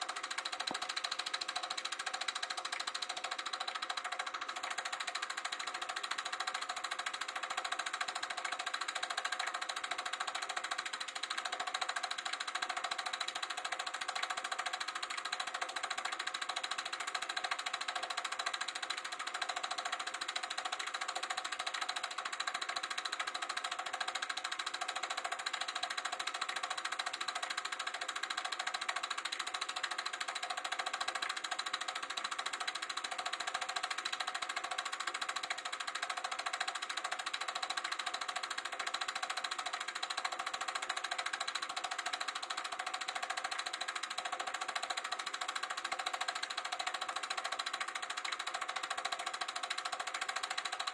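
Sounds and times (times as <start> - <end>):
movie projector clatter and whirr: 0.0 - 50.9.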